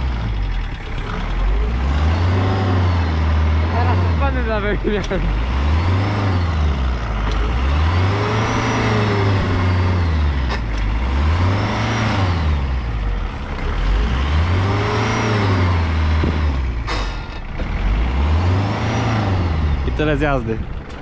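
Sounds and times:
van engine revving: 0:00.0 - 0:21.0.

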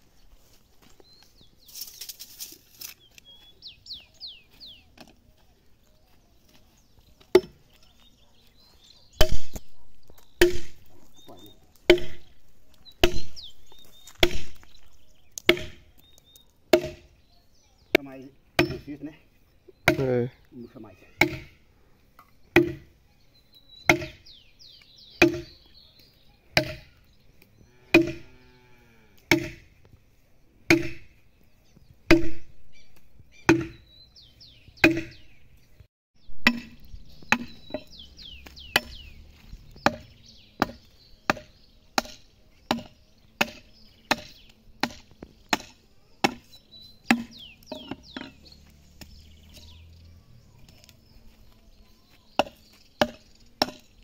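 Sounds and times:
birds chirping faintly: 0:00.0 - 0:54.0
axe chopping into log: 0:07.3 - 0:07.6, 0:09.2 - 0:09.7, 0:10.4 - 0:10.9, 0:11.8 - 0:12.4, 0:13.0 - 0:13.4, 0:14.1 - 0:14.7, 0:15.4 - 0:15.9, 0:16.7 - 0:17.1, 0:19.8 - 0:20.1, 0:21.2 - 0:21.5, 0:22.5 - 0:22.9, 0:23.9 - 0:24.2, 0:25.2 - 0:25.6, 0:26.6 - 0:26.9, 0:27.9 - 0:28.3, 0:29.3 - 0:29.7, 0:30.7 - 0:31.2, 0:32.1 - 0:32.6, 0:33.5 - 0:33.8, 0:34.8 - 0:35.2, 0:36.4 - 0:37.9, 0:38.7 - 0:39.0, 0:39.8 - 0:46.5, 0:47.1 - 0:48.3, 0:52.4 - 0:53.9.

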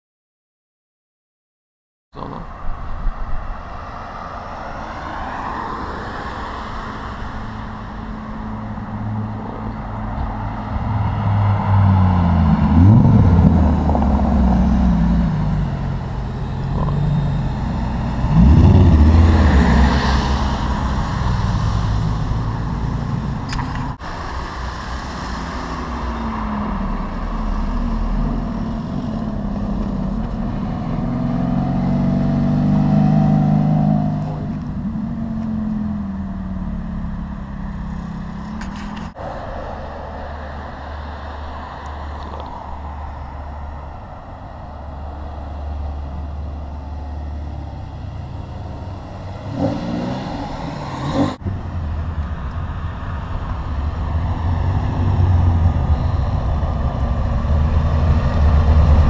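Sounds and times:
sports car engines revving: 0:05.0 - 0:43.0, 0:44.8 - 0:59.0
deep engine running close: 0:09.4 - 0:23.8.

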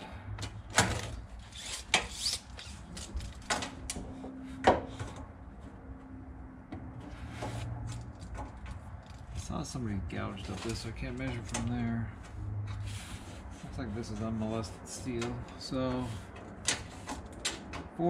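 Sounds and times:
tape measure clicking on metal: 0:01.5 - 0:03.5.

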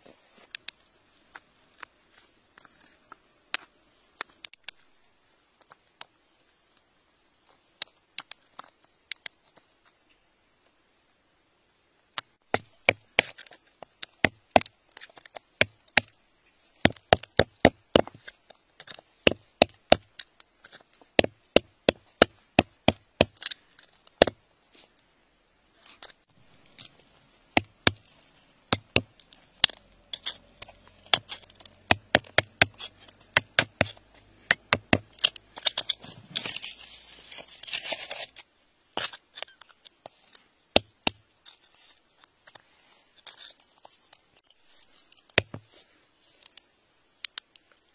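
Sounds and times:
metal tool digging gravelly soil: 0:25.8 - 0:46.7.

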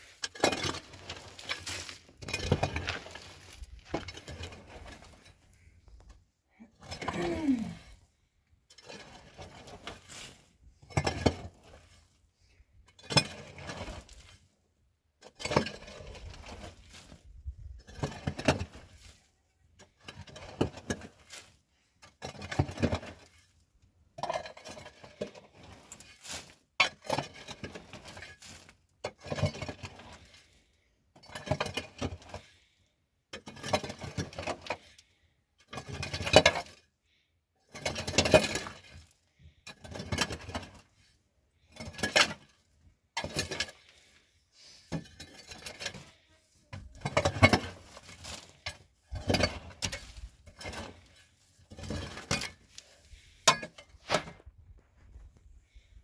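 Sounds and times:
household objects clattering: 0:46.8 - 0:54.5.

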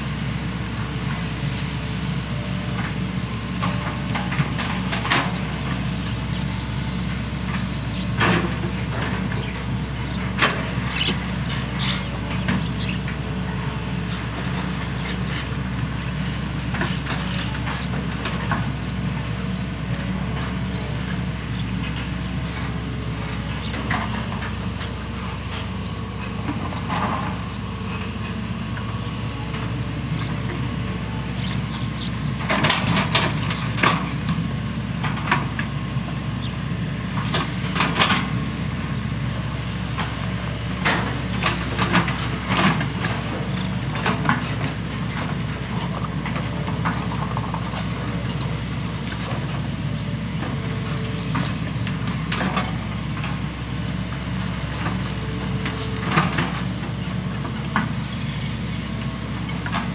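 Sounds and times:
diesel engines under load: 0:00.0 - 0:59.9
excavator buckets clanking: 0:40.0 - 0:58.1.

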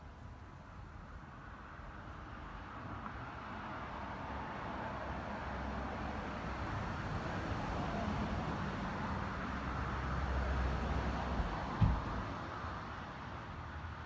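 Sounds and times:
outdoor background rumble and hiss: 0:00.0 - 0:14.0
short dull thump: 0:11.8 - 0:12.2.

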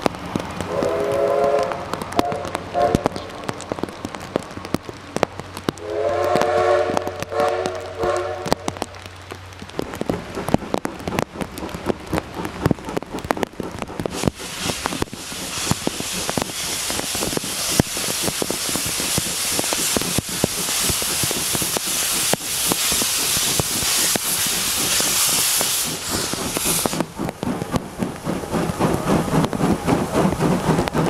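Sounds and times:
heavy rain pattering: 0:00.0 - 0:31.0
locomotive steam hissing: 0:13.7 - 0:31.0.

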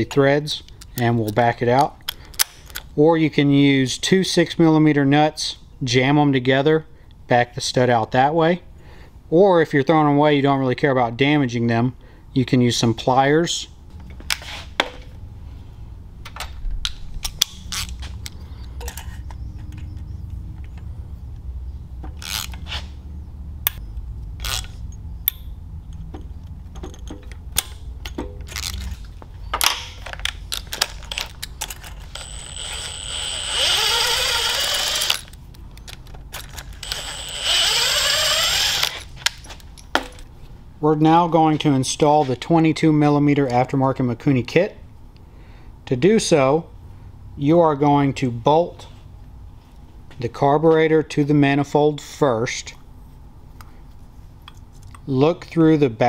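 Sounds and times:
metal tools clinking: 0:17.2 - 0:20.0, 0:24.4 - 0:32.9, 0:35.0 - 0:37.2, 0:38.8 - 0:40.3
cordless impact driver running: 0:32.0 - 0:35.3, 0:36.6 - 0:39.1.

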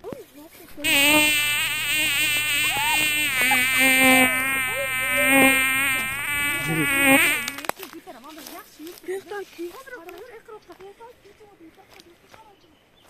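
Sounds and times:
flying insect buzzing: 0:00.8 - 0:07.7.

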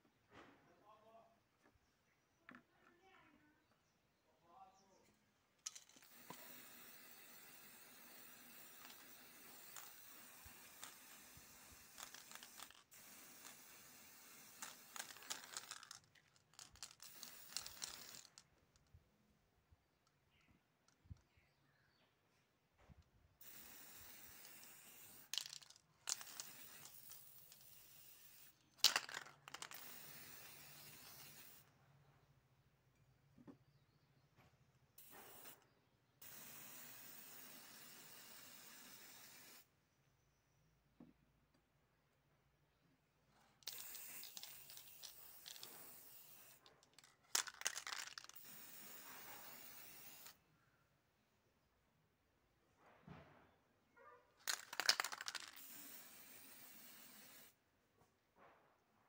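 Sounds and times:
spray can sputtering: 0:05.6 - 0:18.4, 0:23.4 - 0:31.6, 0:35.0 - 0:35.6, 0:36.2 - 0:39.7, 0:43.6 - 0:50.4, 0:54.4 - 0:57.6
aerosol spray can hissing: 0:05.7 - 0:18.3, 0:23.4 - 0:31.6, 0:35.0 - 0:39.7, 0:43.6 - 0:46.7, 0:47.4 - 0:50.4, 0:54.5 - 0:57.6.

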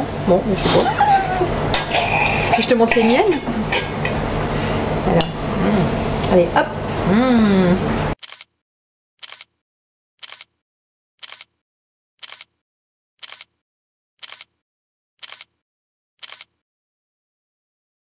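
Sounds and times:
camera shutter click: 0:16.2 - 0:16.5.

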